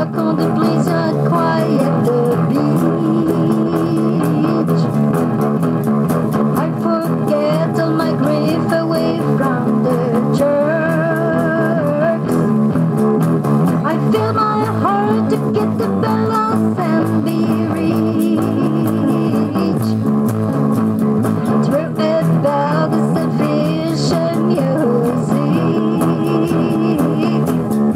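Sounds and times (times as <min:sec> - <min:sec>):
bass line: 0:00.0 - 0:27.9
drums: 0:00.0 - 0:27.9
electric guitar: 0:00.0 - 0:27.9.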